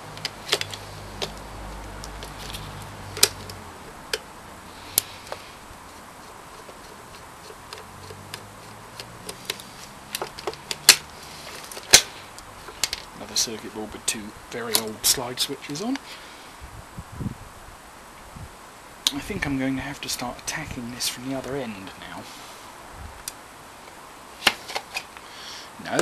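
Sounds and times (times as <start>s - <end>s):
small parts clicking and tapping: 0.1s - 4.3s, 4.9s - 13.1s.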